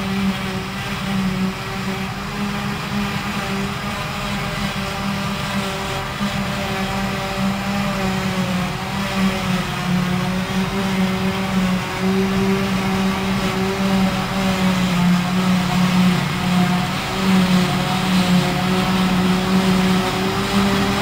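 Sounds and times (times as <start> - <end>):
truck engine: 0.0 - 21.0
forage harvester chopping grass: 10.7 - 21.0.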